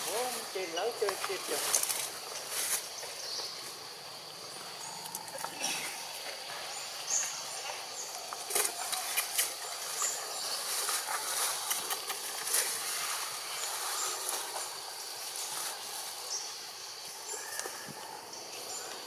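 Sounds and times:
high-pitched hiss: 0.0 - 19.0.

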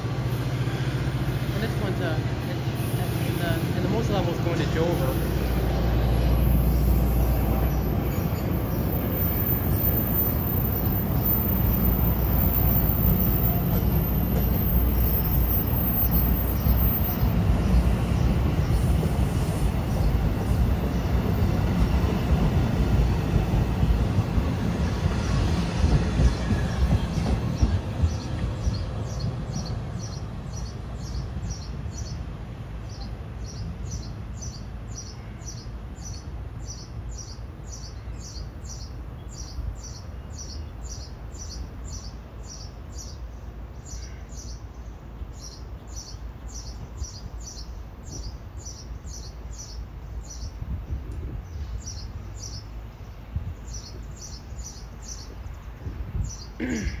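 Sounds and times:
train wheels rumbling on rails: 0.0 - 34.2.

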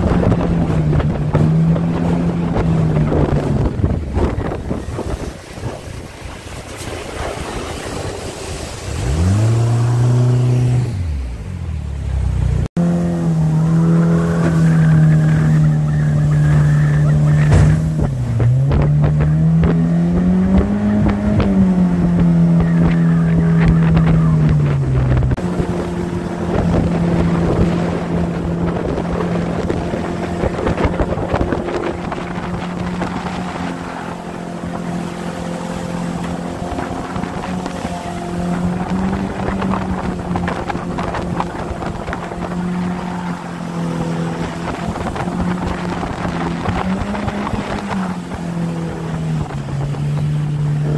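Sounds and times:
jet outboard engine revving: 0.0 - 50.9
wind: 0.0 - 50.9
water hissing: 4.8 - 11.2.

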